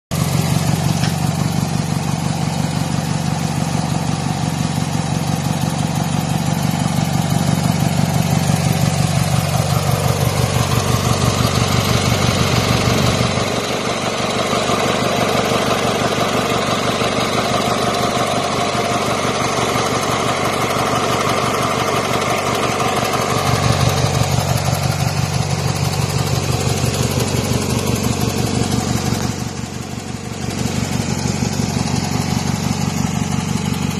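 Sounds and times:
garden tractor engine running: 0.1 - 3.3.

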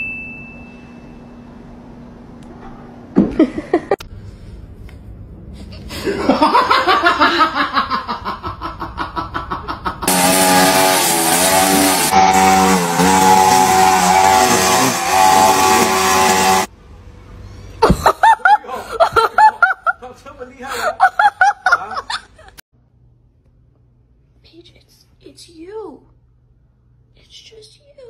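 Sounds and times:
petrol string trimmer running: 10.1 - 16.7.

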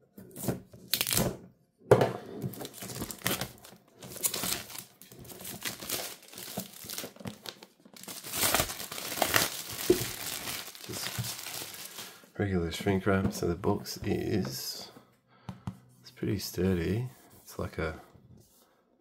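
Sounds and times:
plastic film tearing: 0.9 - 1.3, 2.6 - 12.2
plastic film crinkling: 2.6 - 12.2
knife slitting shrink wrap: 8.0 - 12.0.

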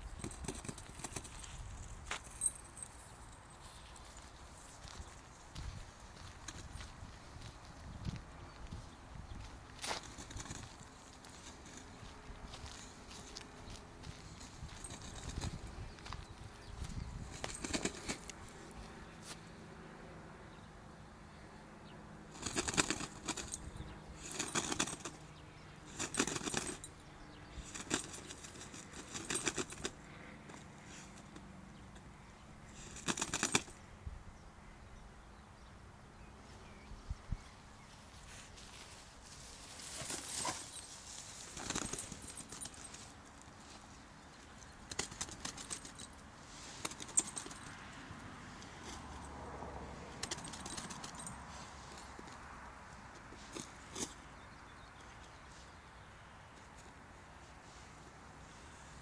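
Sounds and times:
dog rustling in tall grass: 37.9 - 43.9.

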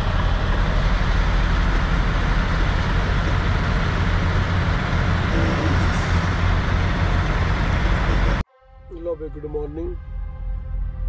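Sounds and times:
diesel truck engine running: 0.0 - 8.4.

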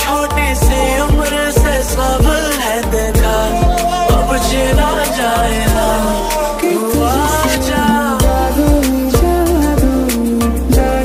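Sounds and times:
pop music with kick drum: 0.0 - 11.0
wavering melodic line: 2.9 - 9.4.

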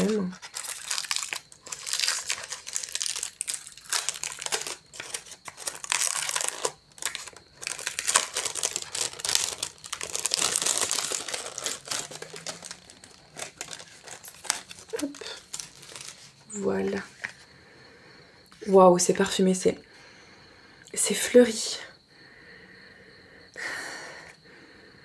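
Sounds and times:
packet crinkling and rustling: 0.0 - 17.4.

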